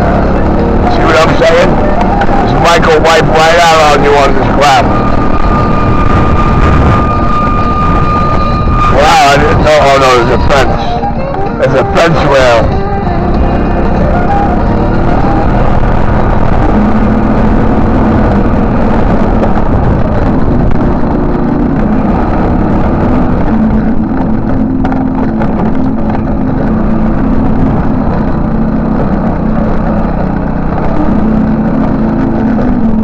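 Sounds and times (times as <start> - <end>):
riding noise on dirt path: 0.0 - 33.0
scooter engine running: 12.3 - 33.0.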